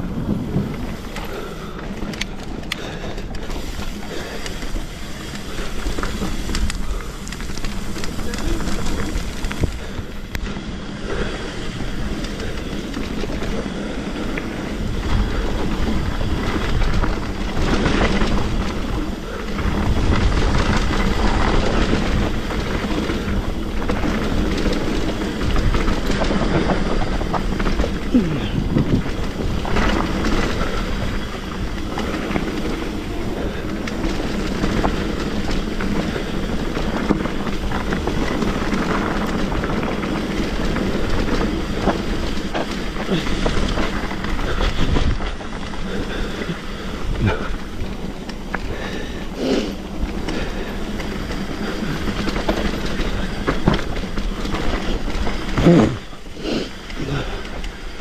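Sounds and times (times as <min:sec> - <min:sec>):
mountain bike rattling over trail: 0:00.0 - 0:58.0.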